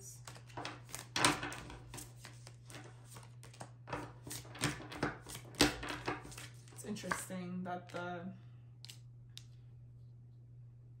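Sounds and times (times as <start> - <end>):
steady low hum: 0.0 - 11.0
cards being shuffled: 0.1 - 8.1.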